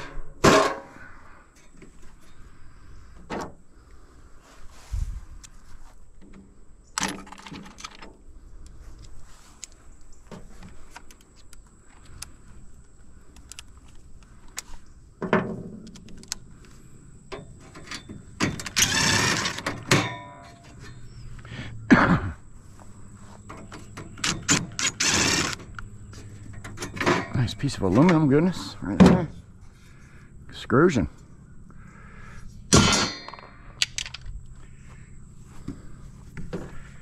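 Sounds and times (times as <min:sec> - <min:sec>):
metal knocks and clanks: 0:00.0 - 0:01.0, 0:15.2 - 0:15.9, 0:17.3 - 0:21.0, 0:23.4 - 0:29.4.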